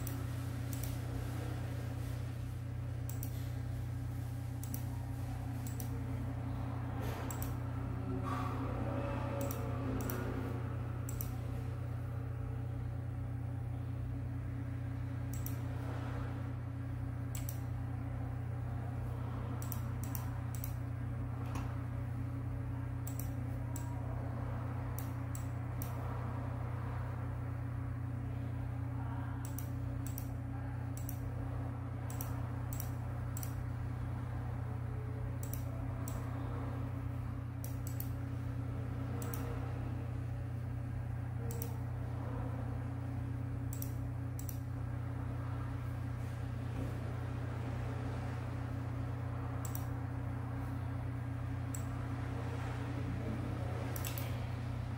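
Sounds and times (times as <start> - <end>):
computer mouse clicking: 0.0 - 1.0, 3.0 - 3.4, 4.6 - 4.9, 5.6 - 6.0, 7.3 - 7.6, 9.4 - 10.3, 11.0 - 11.4, 15.3 - 15.6, 17.3 - 17.7, 19.6 - 20.8, 23.0 - 24.0, 25.0 - 26.0, 29.4 - 30.3, 31.0 - 31.2, 32.1 - 33.6, 35.4 - 36.3, 37.6 - 38.2, 39.2 - 39.5, 41.5 - 41.8, 43.7 - 44.6, 49.6 - 50.0, 54.0 - 54.4
steady low hum: 0.0 - 54.9.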